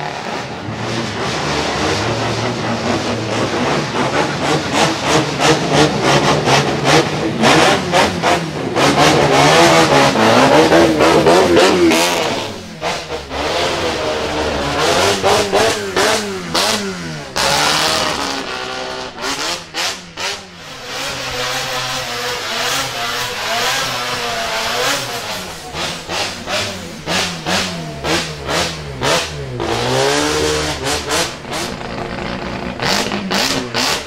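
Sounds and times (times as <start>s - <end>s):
rotary engine revving: 0.0s - 34.0s
tyres spinning in a burnout: 0.0s - 34.0s
exhaust pops and crackles: 30.6s - 34.0s.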